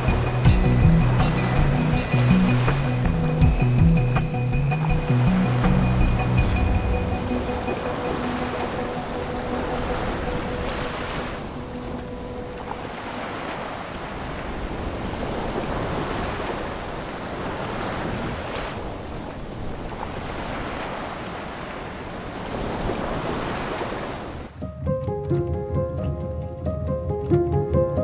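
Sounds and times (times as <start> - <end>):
water washing around boat: 0.0 - 28.0
wind buffeting microphone: 0.0 - 28.0.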